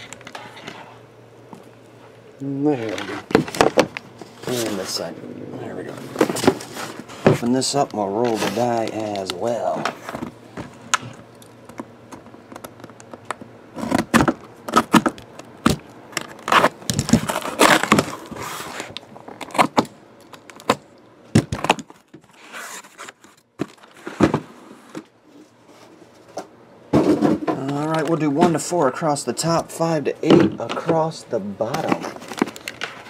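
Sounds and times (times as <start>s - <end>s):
cardboard crinkling and scraping: 2.6s - 11.2s, 12.3s - 19.9s, 21.4s - 26.4s, 30.5s - 33.0s.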